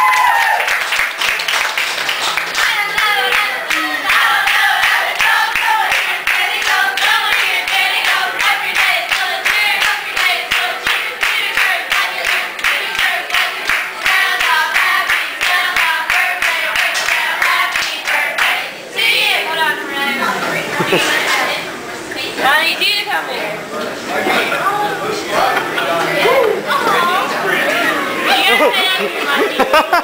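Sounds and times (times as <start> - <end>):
hands clapping in rhythm: 0.1 - 18.6
women singing together: 2.6 - 21.7.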